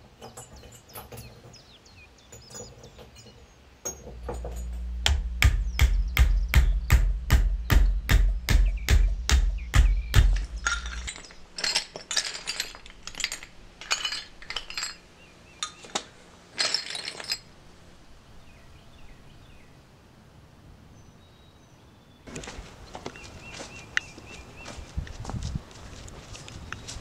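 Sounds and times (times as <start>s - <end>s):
outdoor ambience: 0.0s - 27.0s
glass clinking and breaking: 2.3s - 4.9s, 10.1s - 17.6s
drum beat: 4.2s - 11.0s.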